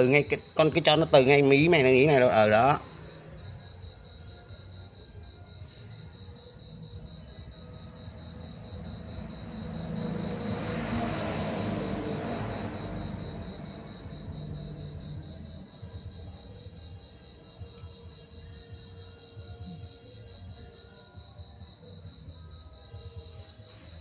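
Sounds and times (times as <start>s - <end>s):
continuous high trill: 0.0s - 24.0s
rapid insect chirping: 0.0s - 24.0s
rushing noise: 8.7s - 15.2s.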